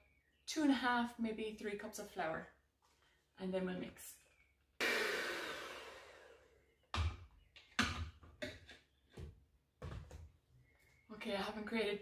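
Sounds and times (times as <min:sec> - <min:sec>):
electric hand mixer whirring: 0:04.8 - 0:06.6.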